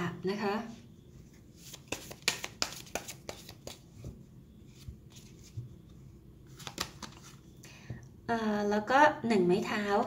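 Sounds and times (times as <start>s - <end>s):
cards clicking and slapping: 1.6s - 3.8s, 6.5s - 7.4s
soft card taps: 1.7s - 3.8s, 6.6s - 7.3s.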